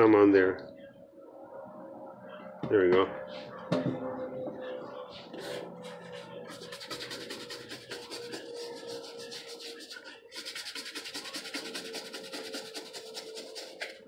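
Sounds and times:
toothbrush scrubbing fabric: 0:05.3 - 0:14.0.

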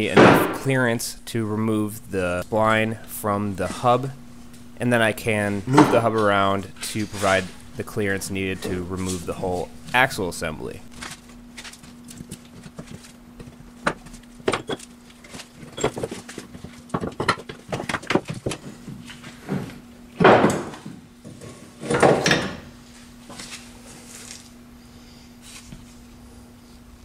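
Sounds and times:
metal clanks and knocks: 0:00.0 - 0:00.8
faint steady hum: 0:00.0 - 0:27.0.

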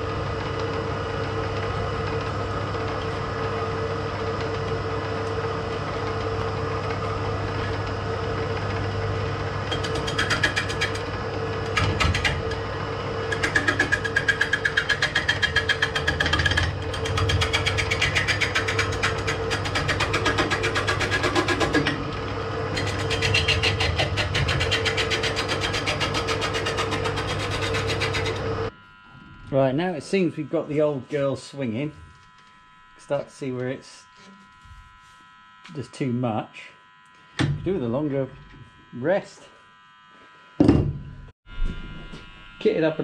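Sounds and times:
lathe motor hum: 0:00.0 - 0:43.0
turning tool chattering on wood: 0:09.7 - 0:11.0, 0:13.3 - 0:22.0.

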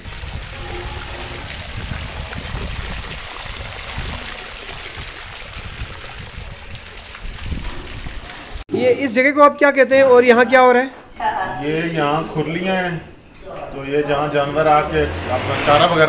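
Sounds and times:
water pouring into trough: 0:00.0 - 0:08.6.

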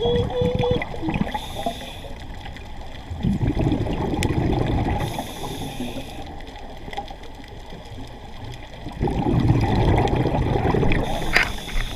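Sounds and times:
diver breathing through regulator: 0:01.3 - 0:02.2, 0:05.0 - 0:06.3, 0:11.0 - 0:11.9
bubbling rush of exhaled air: 0:03.1 - 0:06.2, 0:08.8 - 0:11.9.

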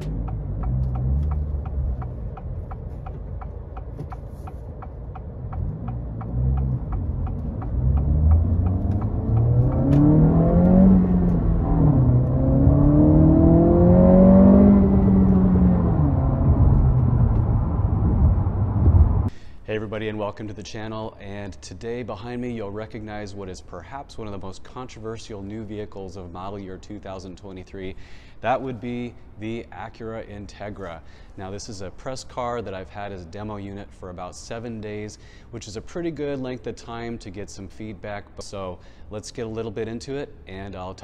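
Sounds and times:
light regular ticking: 0:00.0 - 0:11.4
car engine accelerating: 0:00.0 - 0:19.3.

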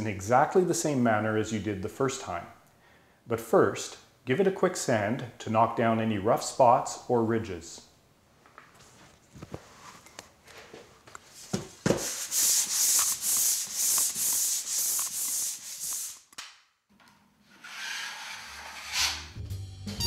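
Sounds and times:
sandpaper sanding drywall: 0:11.9 - 0:16.3, 0:17.6 - 0:19.3.

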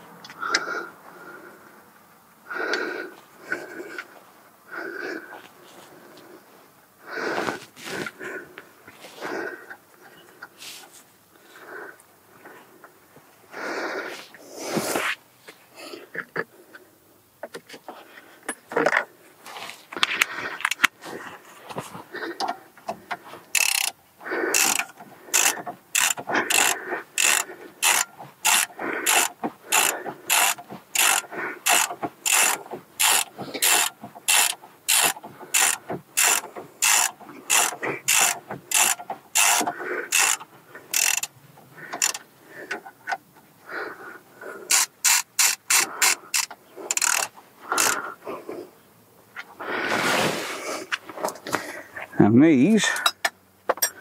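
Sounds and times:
tool handling clicks: 0:22.4 - 0:24.0, 0:24.6 - 0:41.3, 0:41.9 - 0:42.2, 0:44.7 - 0:48.0
ratchet clicking: 0:23.5 - 0:41.3, 0:42.0 - 0:42.2, 0:44.7 - 0:48.0.

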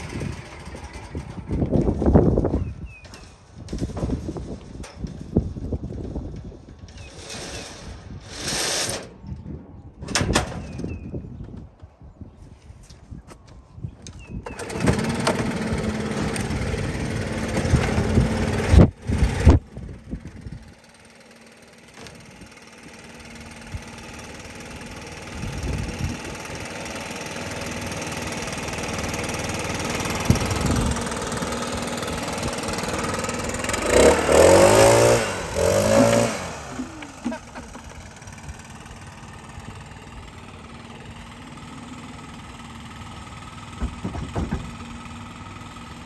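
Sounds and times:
leaf blower engine revving: 0:00.0 - 0:02.5, 0:14.4 - 0:46.0.

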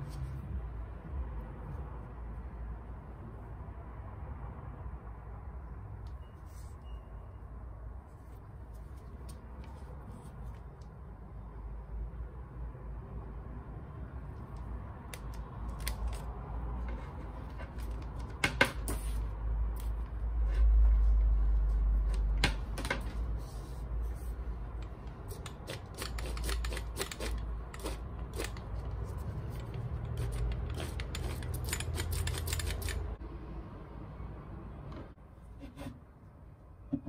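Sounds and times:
small metallic clicks and rattles: 0:24.8 - 0:33.2.

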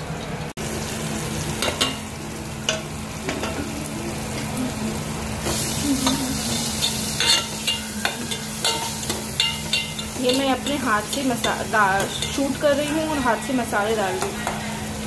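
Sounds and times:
frying sizzle: 0:00.0 - 0:15.0
spoon scraping metal pot: 0:06.6 - 0:13.4.

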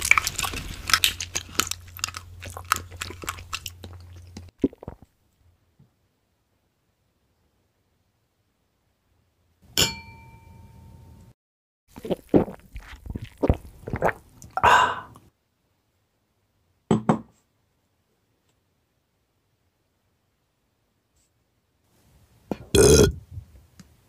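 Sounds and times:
liquid gulped and slurped: 0:00.0 - 0:05.1, 0:11.9 - 0:15.2
wine glass ringing: 0:09.8 - 0:11.2.

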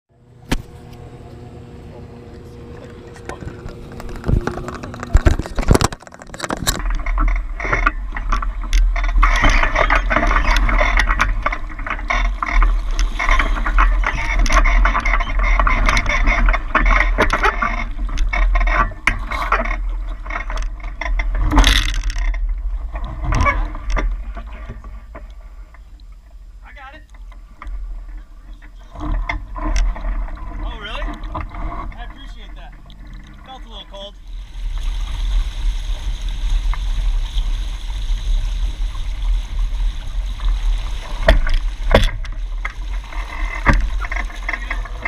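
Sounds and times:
water rushing past hulls: 0:00.2 - 0:45.0
wind rumble on microphone: 0:01.6 - 0:26.6, 0:34.2 - 0:45.0.

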